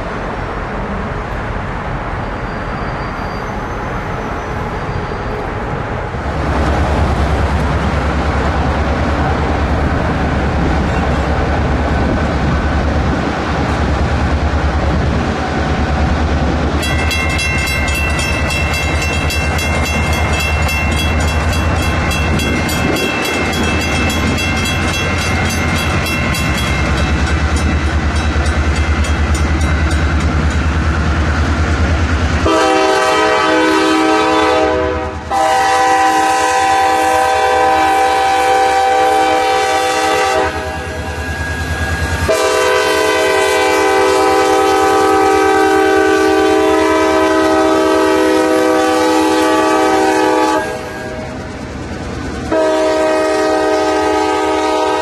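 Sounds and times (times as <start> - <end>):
diesel train rumbling past: 0.0 - 55.0
train wheels clicking: 16.6 - 32.4
locomotive air horn blasts: 32.4 - 41.0, 42.3 - 51.2, 52.5 - 55.0.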